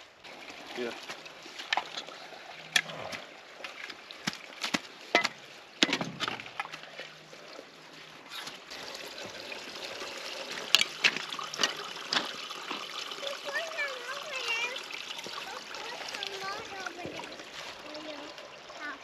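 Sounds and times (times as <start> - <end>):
trickle of water: 0.0 - 19.0
shovels digging wet soil: 1.6 - 7.1.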